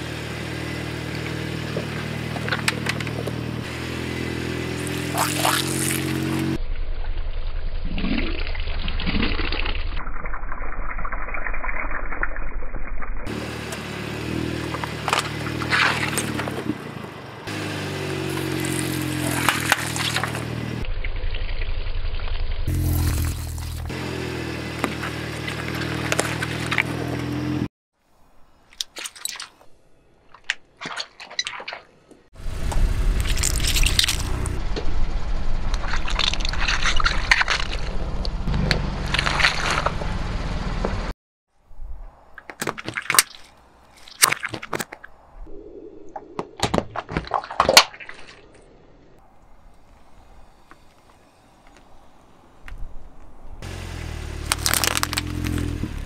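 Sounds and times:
car engine humming: 0.0 - 6.6, 13.3 - 20.8, 22.7 - 27.7, 32.4 - 41.2, 49.2 - 56.0
grit crunching under tyre: 0.8 - 6.6, 13.3 - 20.8, 22.7 - 27.7, 32.6 - 34.6, 35.7 - 41.1, 49.2 - 56.0
stress balls cracking and popping: 54.5 - 55.8.

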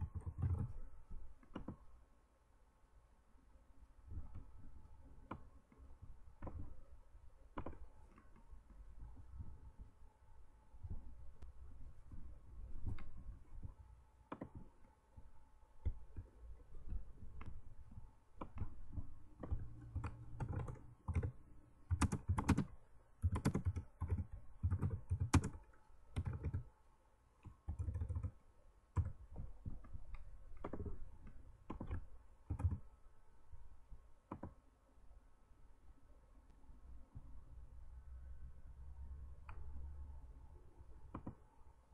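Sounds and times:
computer keyboard typing: 0.0 - 0.8, 1.4 - 1.8, 12.8 - 14.7, 15.8 - 26.7, 27.4 - 32.9, 34.3 - 34.6, 41.1 - 41.4.

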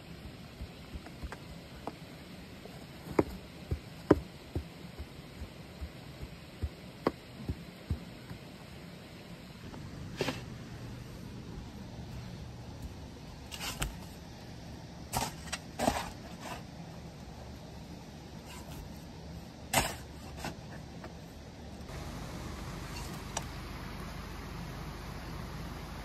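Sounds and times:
steady even hiss: 0.0 - 26.0
steady low hum: 0.0 - 26.0.

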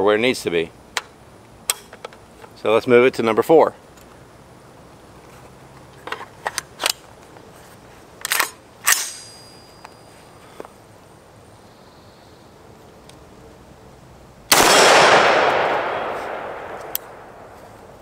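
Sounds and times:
rifle clacks: 14.6 - 17.5.

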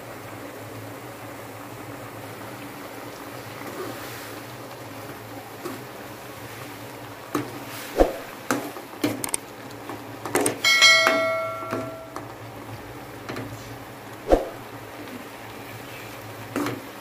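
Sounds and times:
bright metallic ding: 10.6 - 12.3
metal spoon knocking on pot: 10.7 - 12.3.

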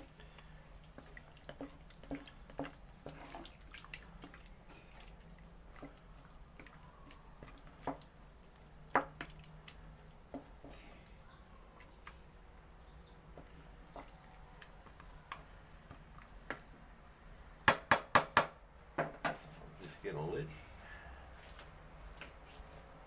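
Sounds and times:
wet stirring in a pot: 0.0 - 17.5.

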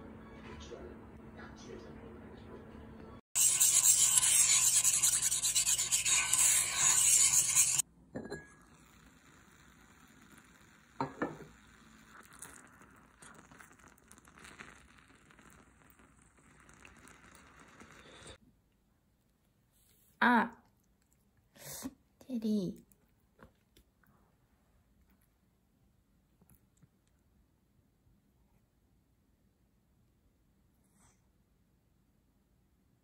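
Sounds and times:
egg sizzling and bubbling in a pot: 3.4 - 18.4.

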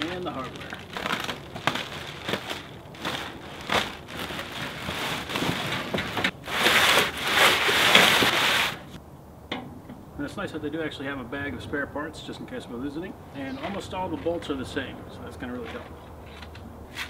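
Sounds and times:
plastic wrapping crinkling: 0.0 - 9.0.

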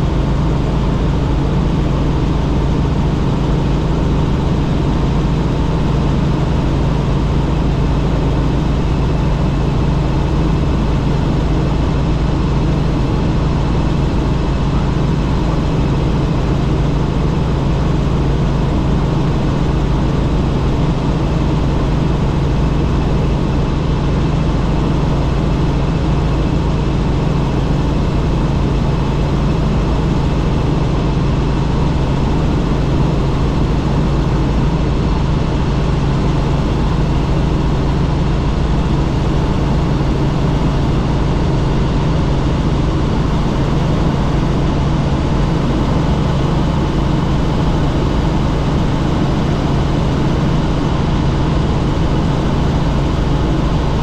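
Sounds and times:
helicopter engine and rotor drone: 0.0 - 54.0.

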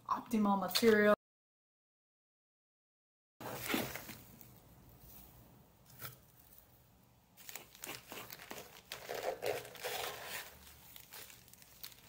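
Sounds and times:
plastic bags crinkling and rustling: 7.4 - 12.0.

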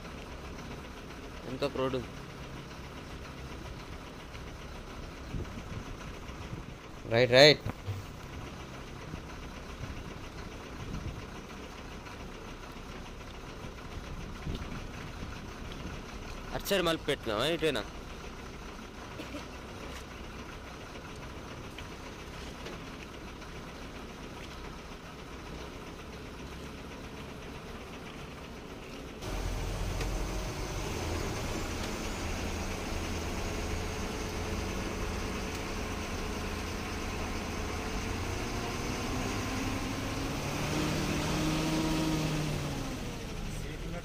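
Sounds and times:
truck diesel engine running: 0.0 - 44.0.

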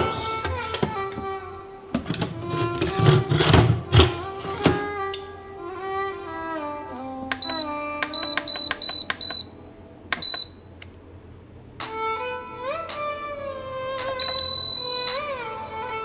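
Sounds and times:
violin music: 0.0 - 8.2, 15.2 - 16.0
pressure cooker control panel beeping: 7.4 - 9.5, 10.2 - 10.6.

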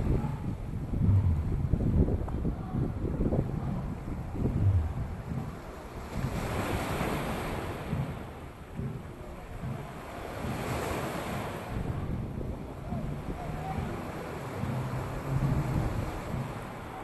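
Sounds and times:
wind buffeting microphone: 0.0 - 17.0
small waves breaking on rocks: 4.0 - 17.0.

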